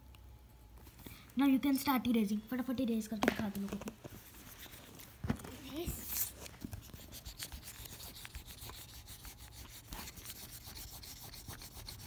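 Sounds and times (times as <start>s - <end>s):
eraser rubbing on paper: 6.0s - 12.0s.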